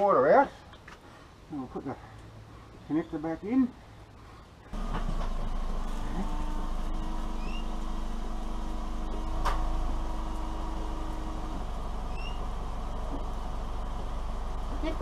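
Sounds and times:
car engine idling: 0:04.7 - 0:15.0
washer pump whining: 0:04.8 - 0:15.0
bird chirping: 0:07.3 - 0:07.9, 0:12.1 - 0:12.6.

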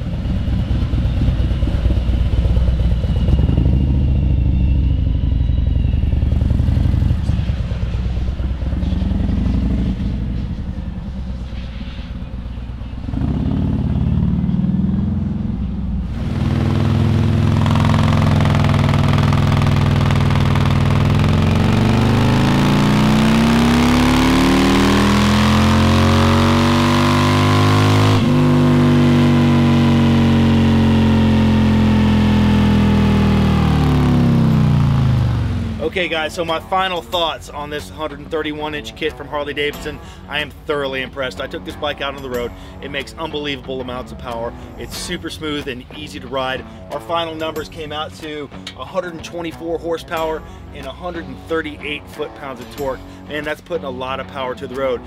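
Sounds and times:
motorcycle engine on a dyno: 0:00.0 - 0:37.2
motorcycle engine revving: 0:00.0 - 0:38.9.

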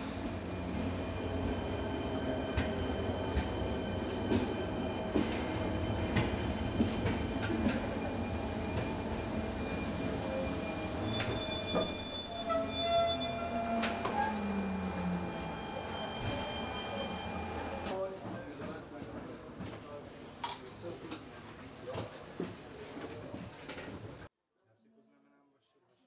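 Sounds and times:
train running rumble: 0:00.0 - 0:19.6
high brake squeal: 0:06.5 - 0:17.9.

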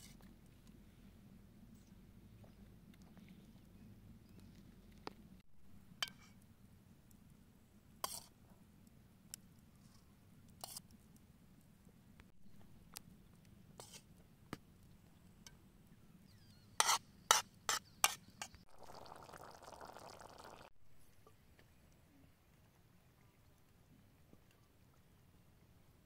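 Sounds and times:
stew bubbling in a pot: 0:18.7 - 0:20.7.

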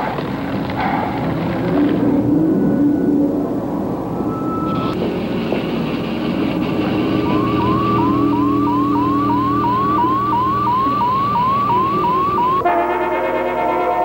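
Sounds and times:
low electronic drone: 0:01.9 - 0:14.0
rising electronic bleeps: 0:04.1 - 0:05.0, 0:06.4 - 0:12.6.

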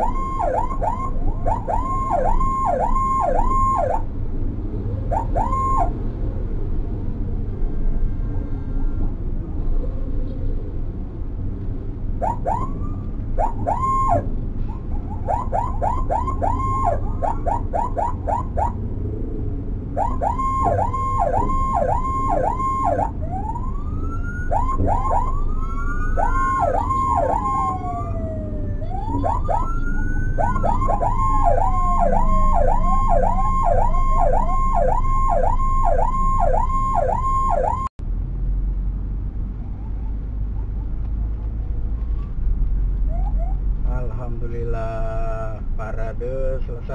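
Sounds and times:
siren wailing: 0:00.0 - 0:06.5, 0:12.2 - 0:37.9
siren yelping: 0:00.0 - 0:06.5, 0:12.2 - 0:37.9, 0:39.6 - 0:40.8, 0:43.0 - 0:43.6
vehicle engines and road rumble: 0:00.0 - 0:46.9.

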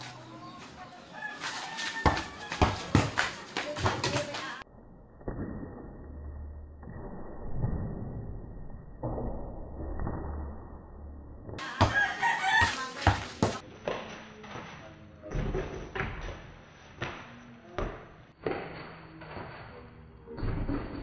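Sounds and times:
rooster crowing: 0:01.2 - 0:02.9, 0:11.6 - 0:12.9
basketball bouncing on dirt: 0:01.5 - 0:04.6, 0:11.6 - 0:14.0.

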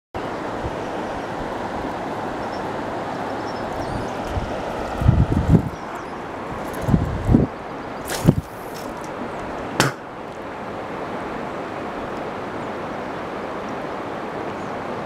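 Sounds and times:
wind noise on microphone: 0:03.4 - 0:10.0
fishing rod swish: 0:08.1 - 0:09.1
sharp knock: 0:09.8 - 0:10.0.

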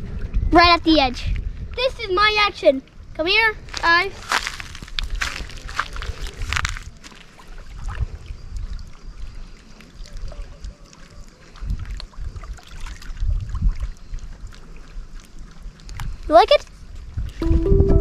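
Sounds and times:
wind buffeting microphone: 0:00.0 - 0:07.0, 0:11.4 - 0:18.0.

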